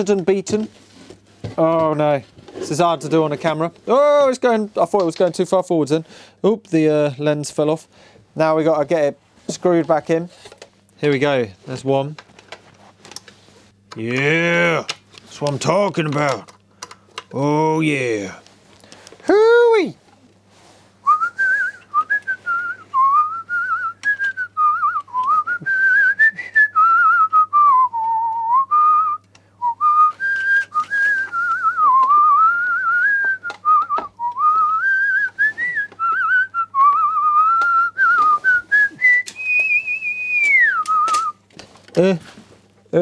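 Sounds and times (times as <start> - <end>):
person whistling a tune: 21.0 - 41.4.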